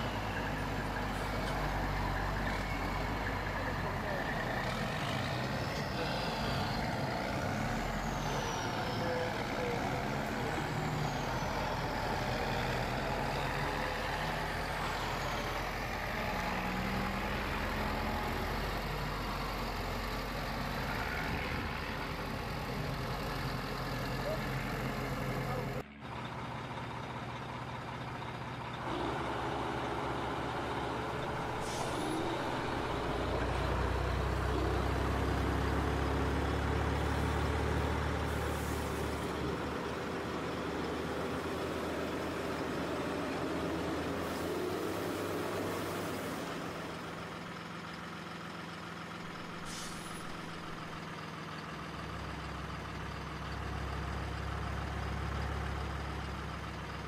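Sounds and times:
truck diesel engine drone: 0.0s - 57.0s
air-brake hisses: 31.4s - 32.9s, 49.6s - 50.6s.

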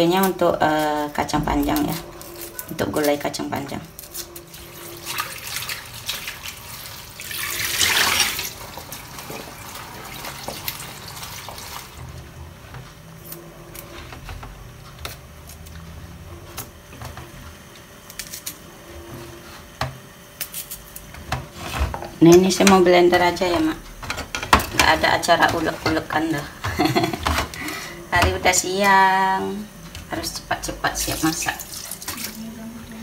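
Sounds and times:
tap water running: 3.0s - 12.3s, 21.8s - 29.2s, 29.9s - 32.6s.

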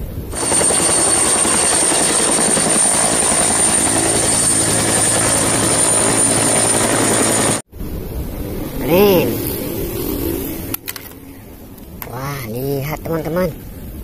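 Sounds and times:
helicopter turbine whine: 0.0s - 12.0s
helicopter rotor chop: 0.3s - 7.7s.

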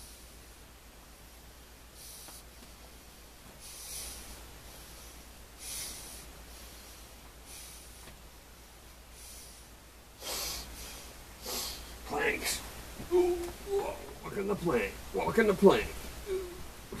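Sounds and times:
faint low hum: 0.0s - 17.0s
man breathing hard: 3.6s - 8.2s, 9.1s - 12.0s.

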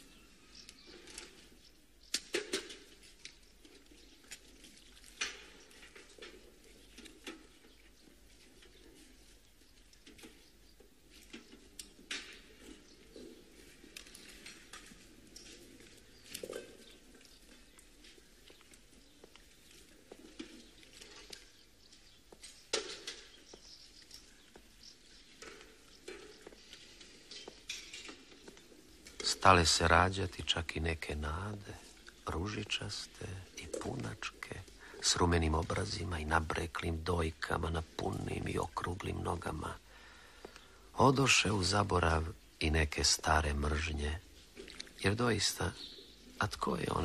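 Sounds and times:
faint footsteps on stone: 2.8s - 40.8s
low hiss: 28.8s - 47.0s.

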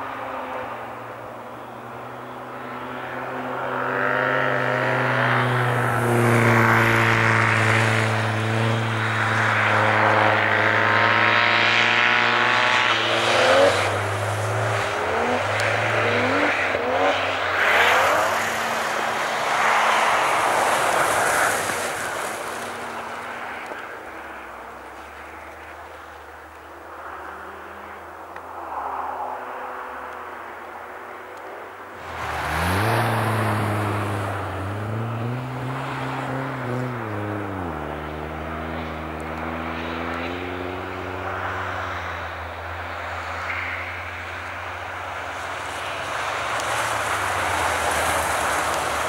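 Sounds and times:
car engine revving: 3.7s - 23.7s, 32.0s - 42.1s
tyres spinning through snow: 11.8s - 26.5s, 32.0s - 38.6s, 45.4s - 49.0s.

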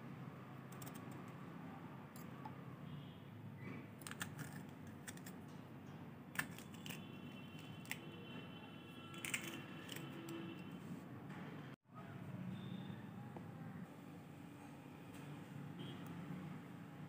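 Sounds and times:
knife snipping chilli: 4.0s - 5.4s, 6.4s - 7.0s.

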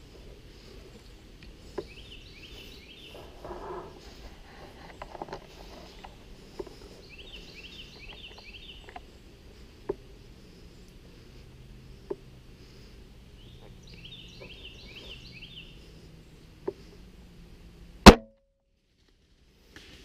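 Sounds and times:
bird singing rising notes: 13.3s - 16.6s.

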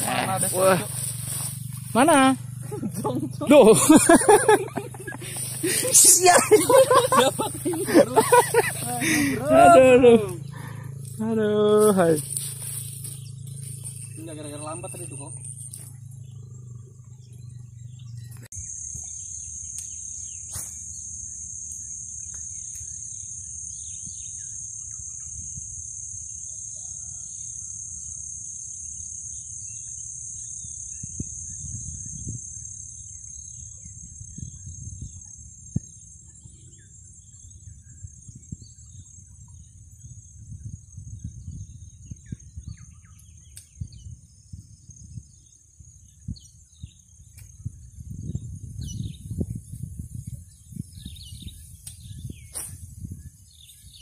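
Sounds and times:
insect chorus: 0.0s - 54.0s
bird chirps: 10.2s - 25.8s, 29.2s - 54.0s
wind on microphone: 31.0s - 32.6s, 33.7s - 54.0s.

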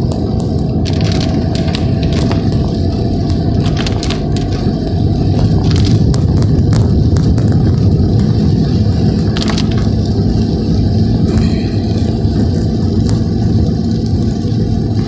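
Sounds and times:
car driving on wet road: 0.0s - 15.0s
raindrops ticking on windscreen: 0.0s - 15.0s.

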